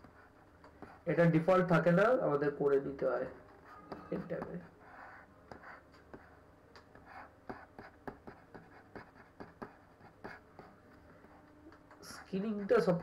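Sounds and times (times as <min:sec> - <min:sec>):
stylus tapping on tablet: 0:05.5 - 0:10.8.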